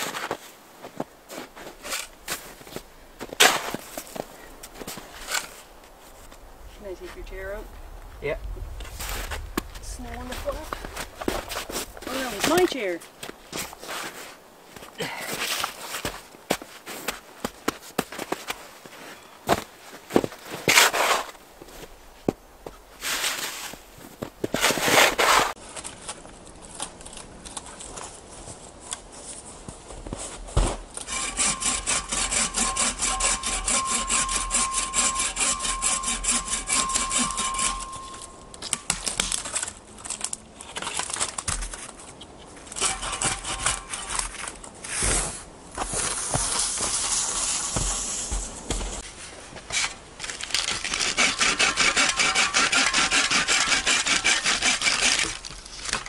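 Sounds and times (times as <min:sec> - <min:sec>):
hand saw cutting branches: 0:11.5 - 0:12.9, 0:20.6 - 0:21.4, 0:24.5 - 0:25.6, 0:31.0 - 0:39.6, 0:42.7 - 0:49.0, 0:49.7 - 0:56.0.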